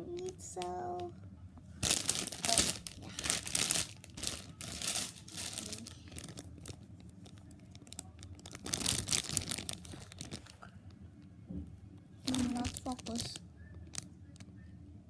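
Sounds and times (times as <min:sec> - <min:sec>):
plastic bag crinkling: 0:01.8 - 0:10.7, 0:12.2 - 0:14.1.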